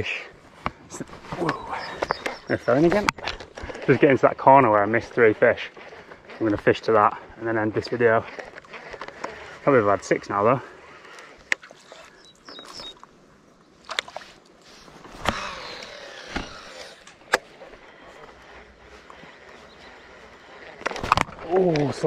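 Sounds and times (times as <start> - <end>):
fishing tackle clicks: 8.2 - 9.6
fishing reel whirring: 14.7 - 21.6.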